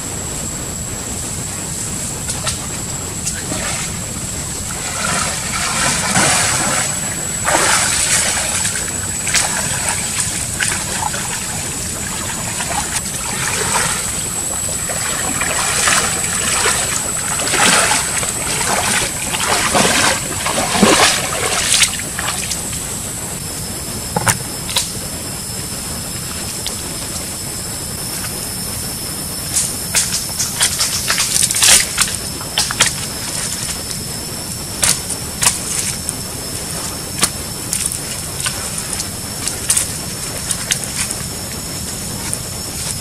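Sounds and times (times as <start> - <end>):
water splashing from wading: 2.1 - 23.0, 29.5 - 34.0.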